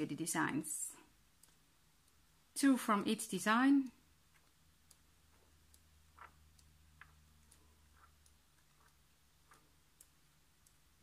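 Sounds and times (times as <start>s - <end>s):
small ticks: 1.4s - 2.2s, 4.3s - 11.0s.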